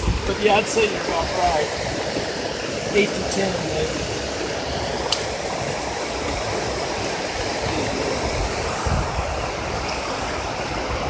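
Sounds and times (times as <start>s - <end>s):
river water rushing: 0.0s - 11.0s
sharp click: 5.1s - 5.3s.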